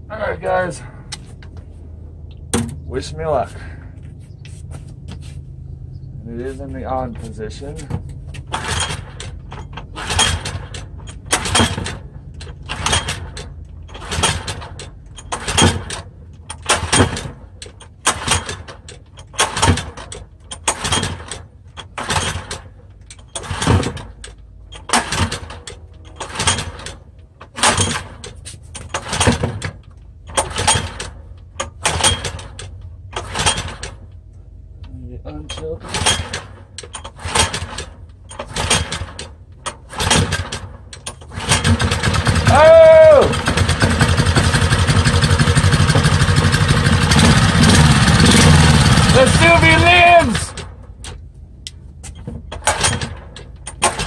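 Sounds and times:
recoil starter rope whirring: 41.2s - 50.7s.

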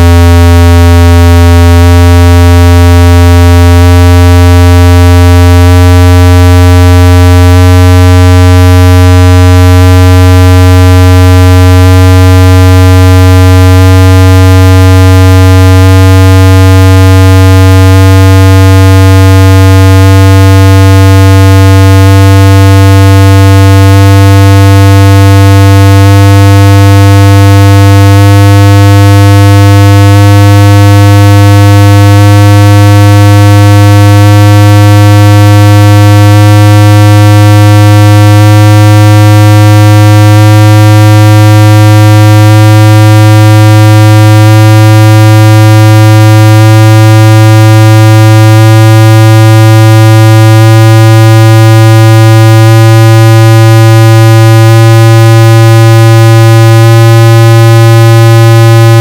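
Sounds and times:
higher stepping test tone: 0.0s - 2.1s, 50.6s - 54.8s, 55.5s - 59.0s
steady low bass tone: 0.0s - 59.0s.

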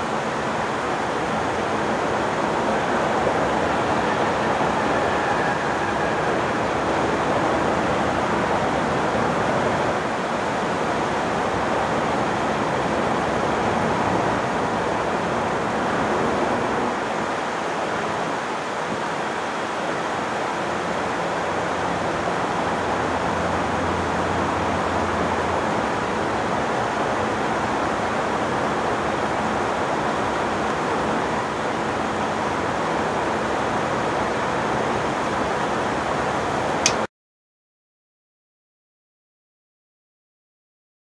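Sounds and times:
diesel locomotives humming: 0.0s - 18.8s.

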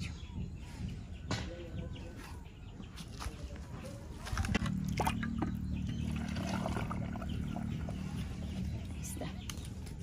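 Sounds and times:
low hum: 4.0s - 10.0s
liquid splashing and trickling: 4.6s - 8.2s.

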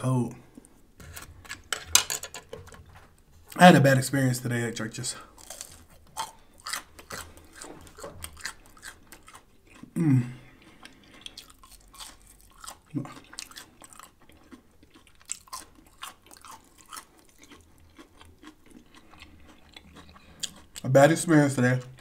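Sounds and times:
crunchy chewing: 5.2s - 22.0s
person humming mm: 10.0s - 10.4s.

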